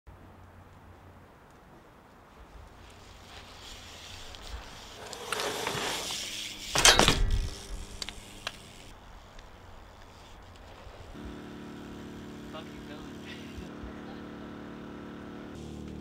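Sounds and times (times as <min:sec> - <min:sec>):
bike tyres rolling on concrete: 0:00.4 - 0:16.0
bike crashing onto concrete: 0:06.7 - 0:07.9.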